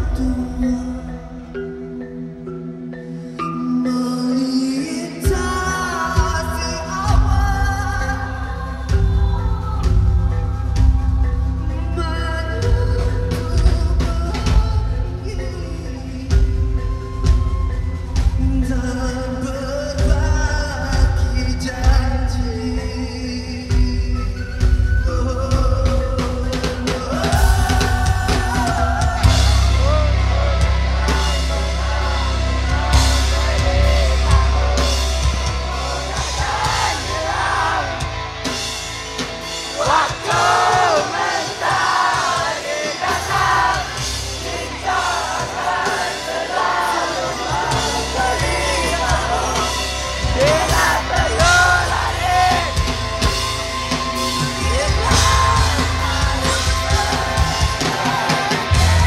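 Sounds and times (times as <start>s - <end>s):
live rock band playing: 0.0s - 59.0s
person singing: 3.1s - 24.5s, 25.1s - 38.2s, 39.7s - 59.0s
crowd yelling and whooping: 27.1s - 59.0s.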